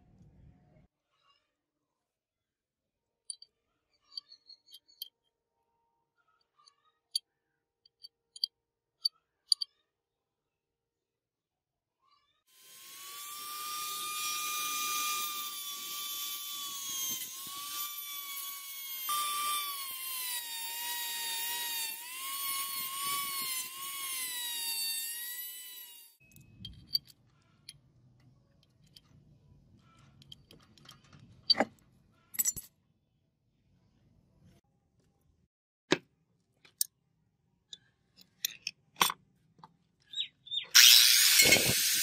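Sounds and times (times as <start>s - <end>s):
rotary tool grinding steel: 12.5s - 27.1s, 40.7s - 42.0s.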